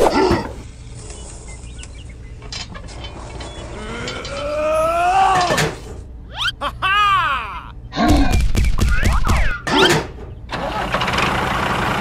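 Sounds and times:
long pitched cartoon cry: 0:03.8 - 0:05.6, 0:06.2 - 0:07.9.

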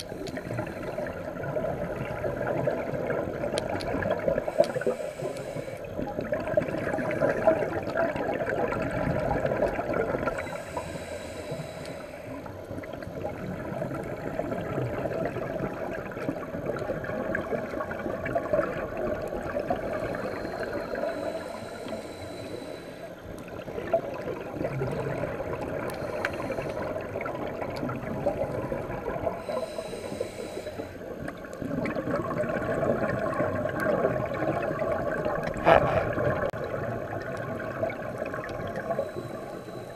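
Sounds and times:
regulator inhale hiss: 0:00.0 - 0:01.3, 0:04.4 - 0:06.1, 0:10.2 - 0:12.7, 0:19.7 - 0:23.7, 0:25.8 - 0:27.3, 0:29.3 - 0:31.4, 0:38.8 - 0:39.9.

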